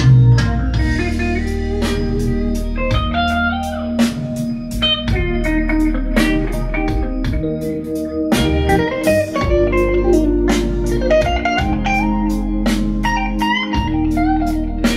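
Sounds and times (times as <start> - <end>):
blues-rock song over loudspeakers: 0.0 - 14.9
electric guitar: 0.0 - 14.9.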